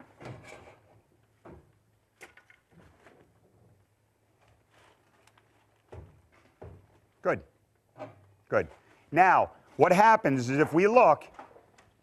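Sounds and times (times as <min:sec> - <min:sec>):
metal bar scraping steel door track: 0:00.2 - 0:00.9.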